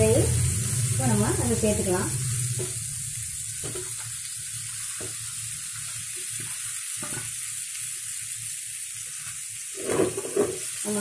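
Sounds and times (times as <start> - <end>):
chicken sizzling in hot oil: 0.0 - 11.0
spatula scraping pan: 9.7 - 10.7.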